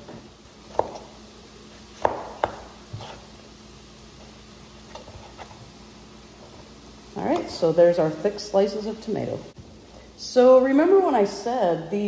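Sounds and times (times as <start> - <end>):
faint steady hum: 0.0 - 12.0
knife slicing tomato: 0.7 - 3.4.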